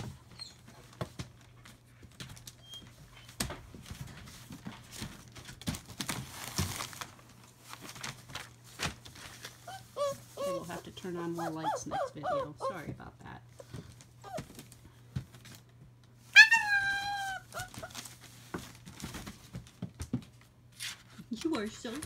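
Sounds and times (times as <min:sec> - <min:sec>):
puppies scratching and tapping: 0:00.0 - 0:07.0, 0:12.5 - 0:15.6, 0:17.0 - 0:22.0
newspaper crinkling and rustling: 0:03.2 - 0:10.5, 0:17.0 - 0:22.0.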